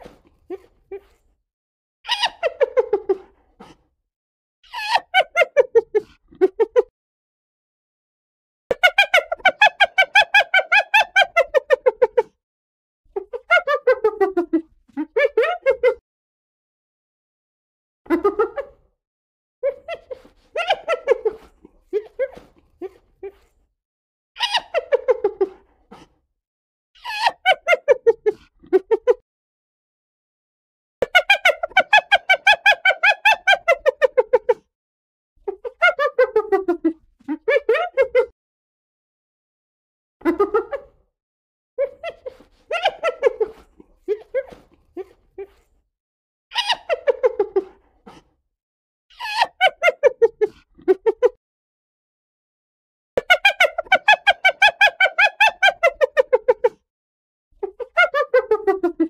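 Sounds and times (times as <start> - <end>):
hyena giggling: 2.1 - 3.8, 24.4 - 26.1, 41.8 - 45.8, 46.6 - 48.3, 49.2 - 51.4.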